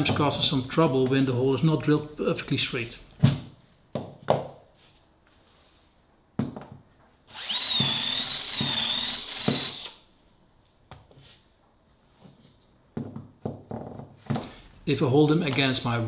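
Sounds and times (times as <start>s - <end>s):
cordless drill whining: 7.3s - 10.0s.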